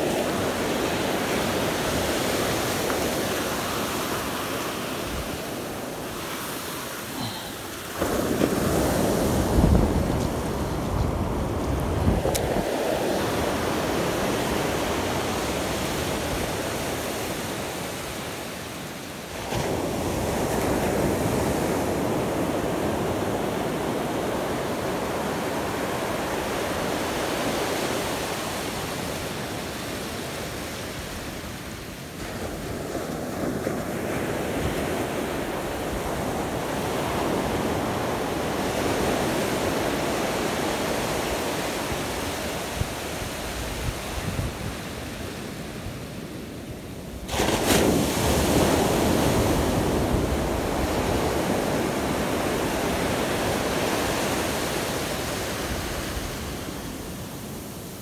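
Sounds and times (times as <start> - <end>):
ocean surf breaking: 0.0 - 58.0
wind buffeting microphone: 8.0 - 17.0, 32.2 - 46.0.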